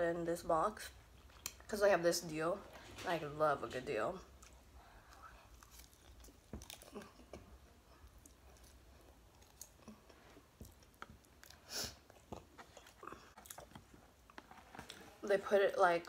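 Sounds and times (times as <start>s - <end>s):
chewing mouth noises: 4.3s - 15.1s.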